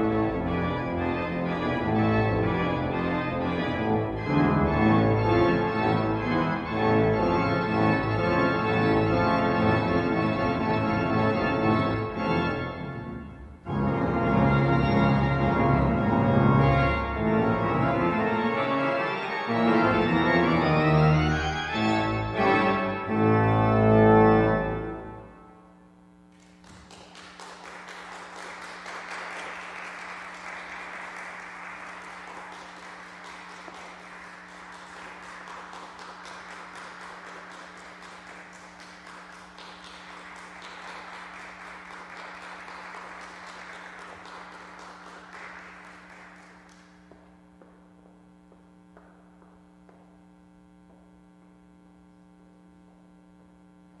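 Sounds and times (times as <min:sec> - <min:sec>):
pipe organ playing chords: 0:00.0 - 0:26.0, 0:28.2 - 0:51.1
applause: 0:26.3 - 0:47.8
steady low hum: 0:45.7 - 0:54.0.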